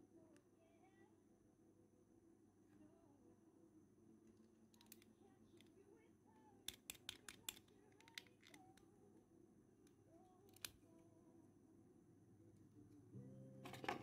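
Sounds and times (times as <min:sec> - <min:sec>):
sharp plastic clicks: 0:04.8 - 0:05.7, 0:06.7 - 0:08.8, 0:10.5 - 0:10.8.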